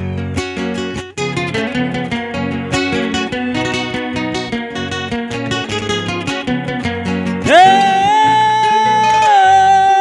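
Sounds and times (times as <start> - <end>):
acoustic guitars strumming and plucking: 0.0 - 10.0.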